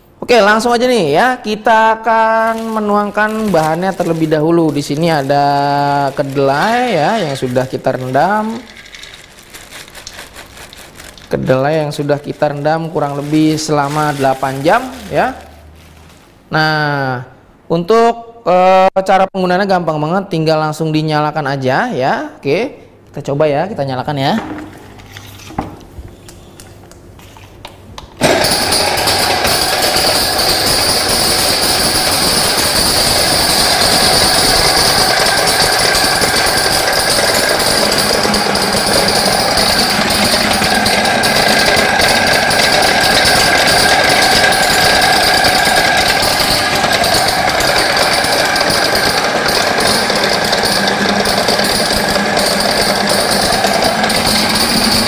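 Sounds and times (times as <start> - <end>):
grinding machine running: 2.1 - 16.2, 28.2 - 55.0.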